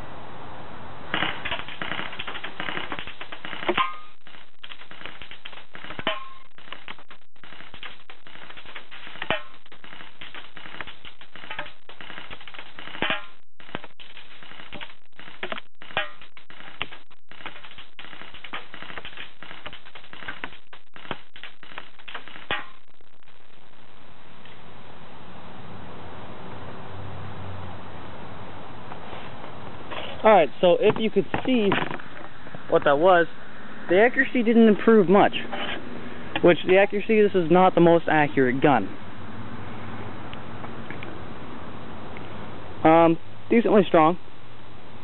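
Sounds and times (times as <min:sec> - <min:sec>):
pellet hits ringing on can: 0:01.2 - 0:06.5
pellets clattering on board: 0:01.2 - 0:07.0, 0:07.6 - 0:22.7.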